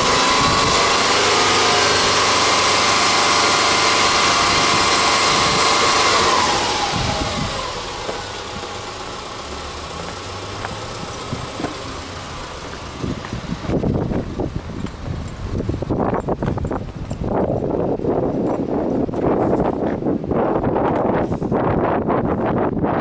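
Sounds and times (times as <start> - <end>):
car engine revving: 0.0 - 16.8.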